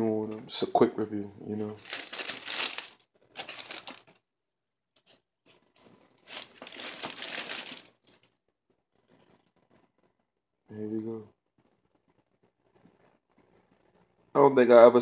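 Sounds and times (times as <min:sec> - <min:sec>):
tissue paper rustling: 0:01.8 - 0:04.2, 0:05.1 - 0:08.3.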